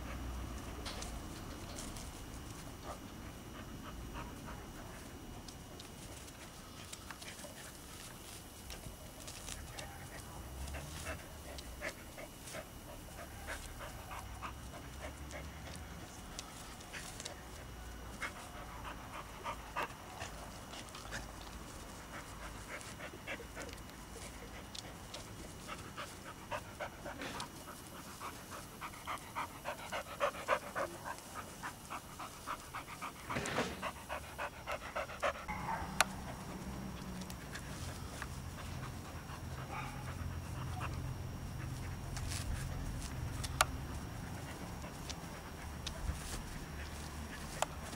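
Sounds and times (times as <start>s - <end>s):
dog panting rapidly: 2.8s - 5.2s, 9.8s - 35.5s.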